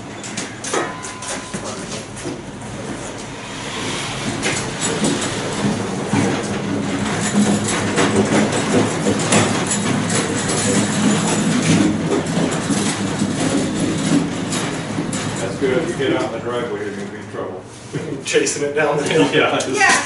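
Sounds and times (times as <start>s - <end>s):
tools rattling in drawers: 5.0s - 15.4s.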